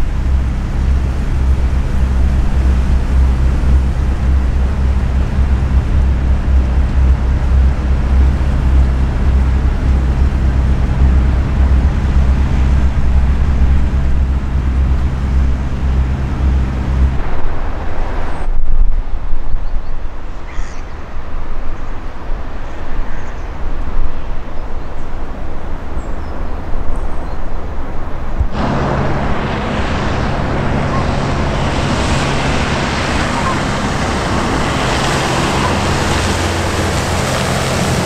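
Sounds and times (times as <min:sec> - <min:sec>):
diesel engine drone: 0:00.0 - 0:18.6, 0:28.1 - 0:38.0
wind on microphone: 0:00.0 - 0:38.0.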